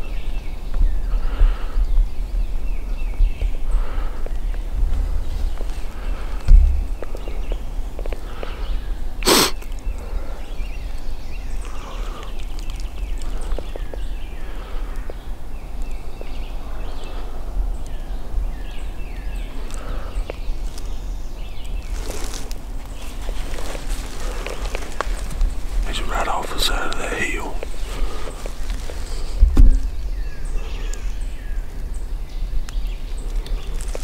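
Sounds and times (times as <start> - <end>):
songbirds calling faintly: 0.0 - 34.0
steady low rumble: 1.2 - 8.4.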